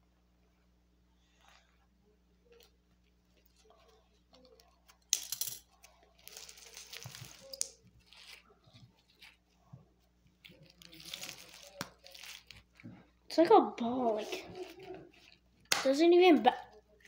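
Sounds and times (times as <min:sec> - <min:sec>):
foam filling crinkling: 0:06.1 - 0:15.7.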